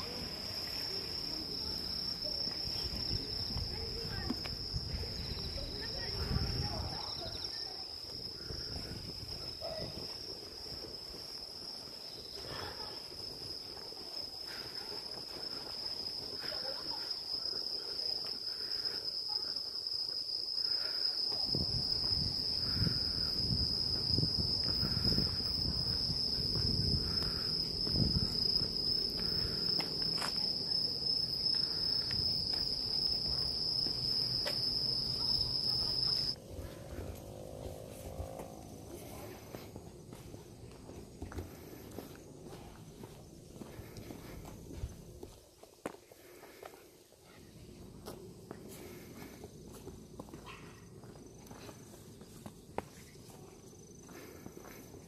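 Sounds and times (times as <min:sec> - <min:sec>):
insects buzzing: 0:00.0 - 0:40.2
low rumble: 0:36.3 - 0:40.1.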